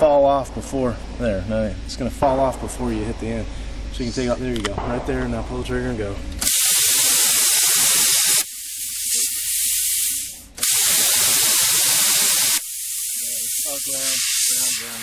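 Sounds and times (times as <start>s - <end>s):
plasma cutter hissing: 6.4s - 15.0s.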